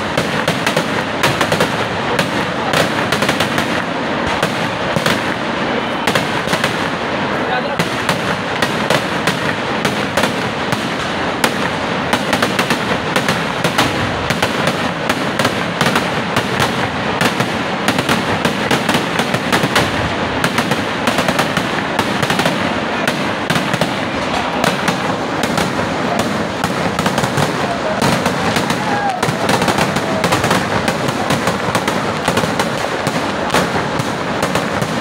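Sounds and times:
fireworks bangs and crackles: 0.0 - 35.0.

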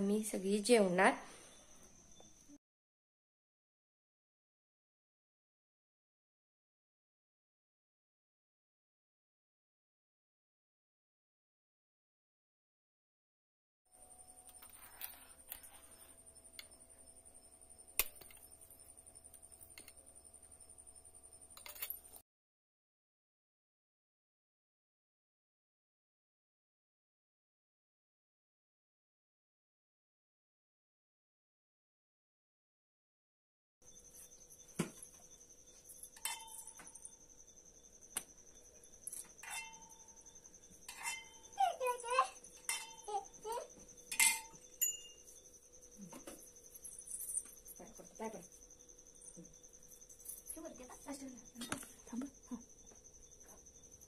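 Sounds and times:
metal vessels clinking: 35.9 - 37.1, 39.0 - 40.0, 40.7 - 43.4, 44.1 - 45.4
short ringing tones: 38.6 - 45.7.

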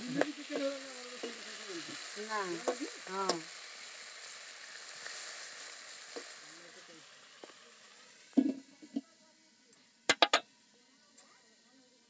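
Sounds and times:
fish frying in oil: 0.0 - 9.0.

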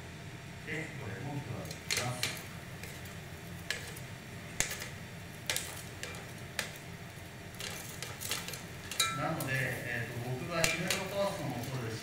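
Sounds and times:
steady low hum: 0.0 - 12.0
metal tongs clicking on pans: 1.6 - 4.0, 4.6 - 6.8, 7.5 - 9.8, 10.5 - 11.8.

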